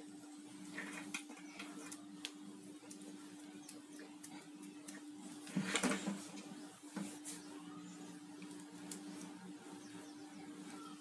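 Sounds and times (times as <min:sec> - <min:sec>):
steady low hum: 0:00.0 - 0:11.0
cable rustling and scraping: 0:00.6 - 0:03.1.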